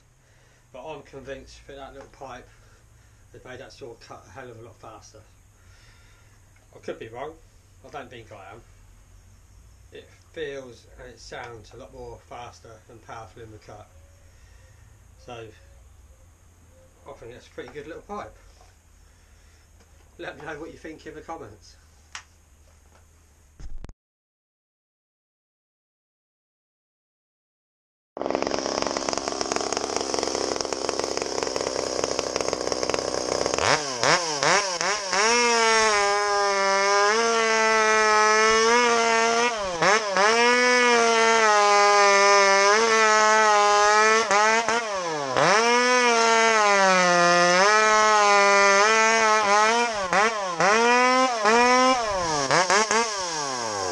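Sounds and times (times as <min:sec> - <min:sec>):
chainsaw cutting logs: 0:28.2 - 0:53.9.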